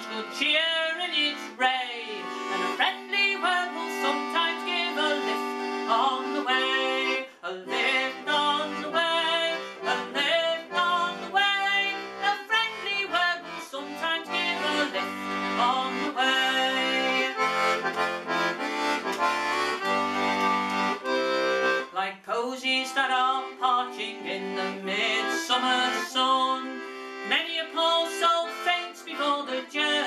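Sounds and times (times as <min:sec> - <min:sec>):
accordion melody over held chords: 0:00.0 - 0:30.0.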